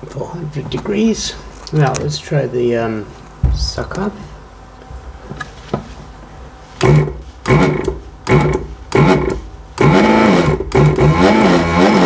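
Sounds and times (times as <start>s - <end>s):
vacuum pump running: 3.3s - 12.0s.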